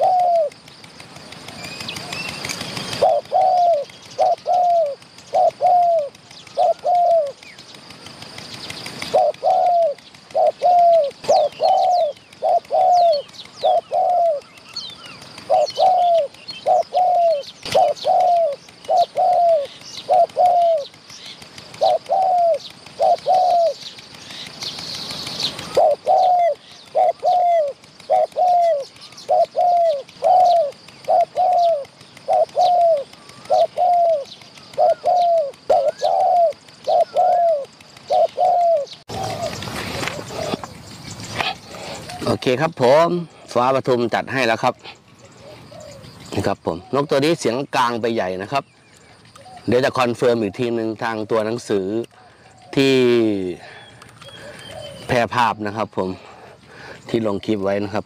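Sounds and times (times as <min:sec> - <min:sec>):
doves cooing: 0:00.0 - 0:58.0
small birds chirping: 0:00.0 - 0:58.0
bursts of hissing noise: 0:23.8 - 0:27.0.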